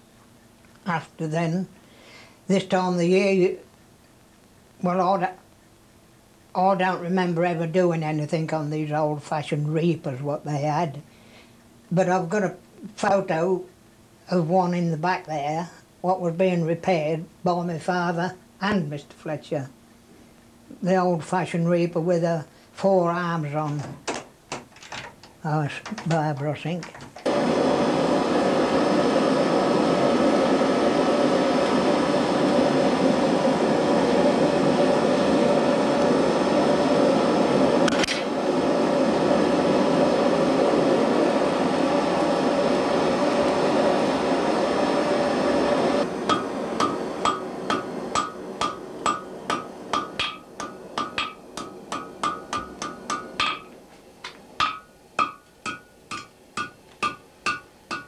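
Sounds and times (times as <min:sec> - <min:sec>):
loud steady rushing noise: 0:27.3 - 0:53.8
hammer striking iron on anvil: 0:46.3 - 0:53.7, 0:54.6 - 0:58.0.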